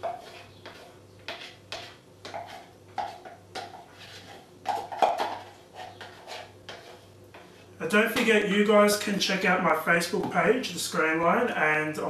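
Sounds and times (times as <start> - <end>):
utensil scraping and tapping jug: 0.0 - 7.5.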